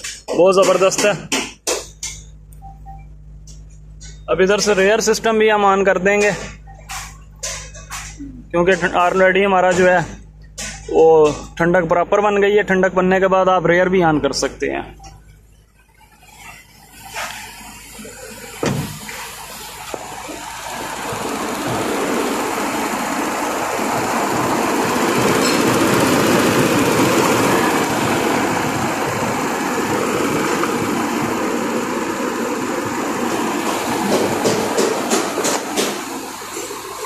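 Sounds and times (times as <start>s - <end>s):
car air conditioning fans: 0.0s - 37.0s
knocks: 33.6s - 36.1s.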